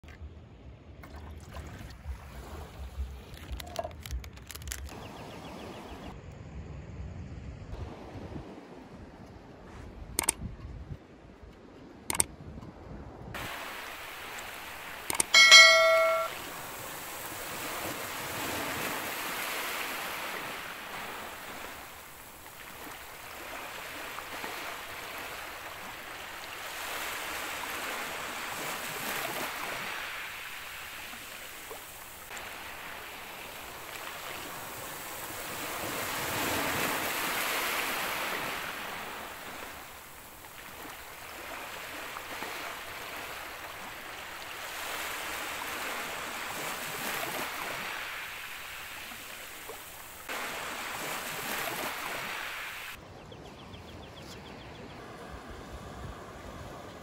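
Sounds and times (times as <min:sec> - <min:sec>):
ocean surf breaking on beach: 0:13.4 - 0:53.0.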